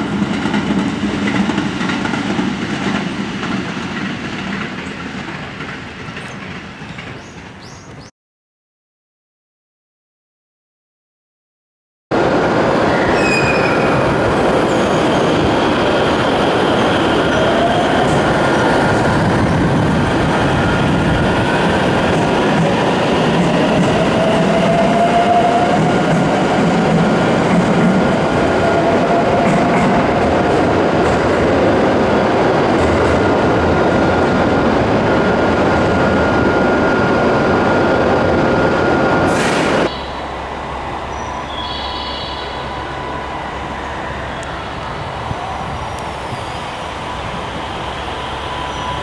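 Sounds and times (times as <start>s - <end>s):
low hum of standing train: 0.0s - 8.1s, 12.1s - 49.0s
train wheels rolling on rails: 0.0s - 8.1s, 12.2s - 49.0s
train motor whine: 36.0s - 49.0s.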